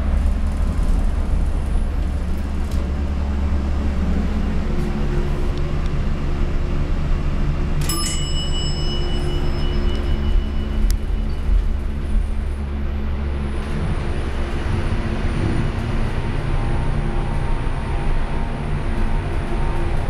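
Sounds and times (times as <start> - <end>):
hydraulic elevator rumble: 0.0 - 20.0
faint high whine: 7.8 - 12.7.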